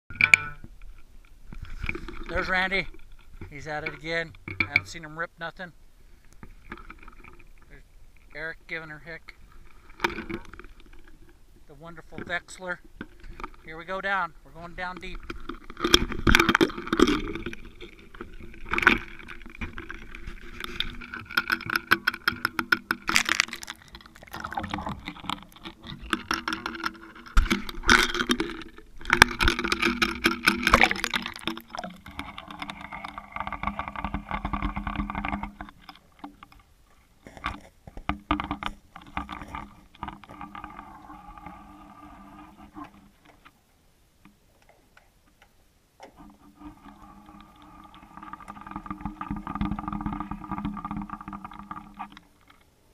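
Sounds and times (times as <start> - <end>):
muffled underwater sound: 23.1 - 36.2.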